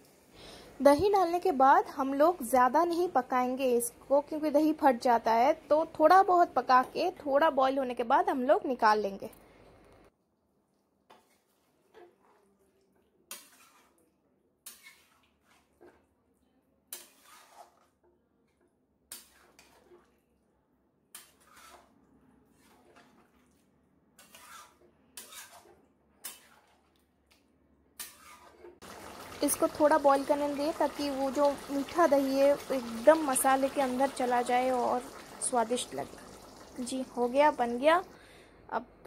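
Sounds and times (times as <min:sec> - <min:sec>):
metal spatula scraping pan: 0:13.3 - 0:14.0, 0:14.6 - 0:16.0, 0:16.9 - 0:18.0, 0:19.1 - 0:20.1, 0:21.1 - 0:23.3, 0:24.2 - 0:26.9, 0:28.0 - 0:28.8.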